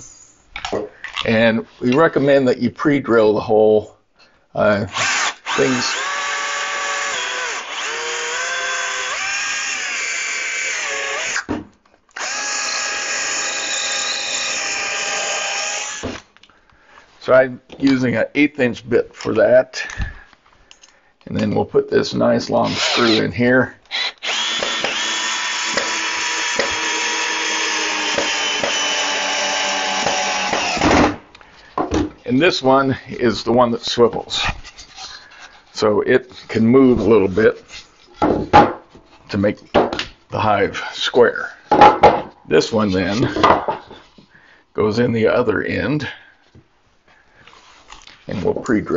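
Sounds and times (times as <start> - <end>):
cordless drill drilling into wood: 4.9 - 11.5, 12.1 - 16.3, 22.6 - 23.2, 23.9 - 31.2.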